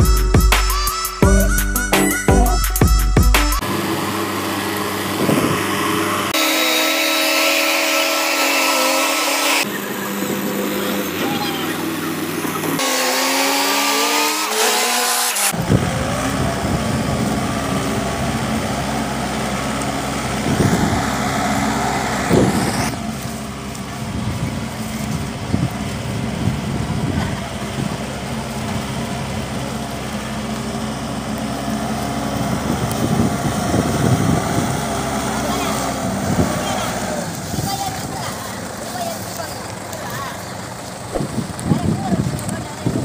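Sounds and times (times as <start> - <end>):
diesel engine running: 0.0 - 43.0
engine revving: 3.4 - 23.4, 28.6 - 38.4.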